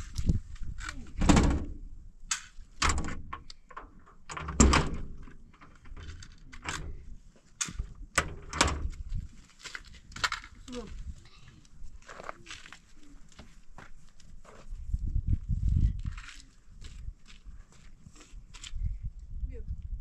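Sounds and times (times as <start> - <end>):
knocks and thuds on door: 1.2 - 1.8, 4.3 - 5.2.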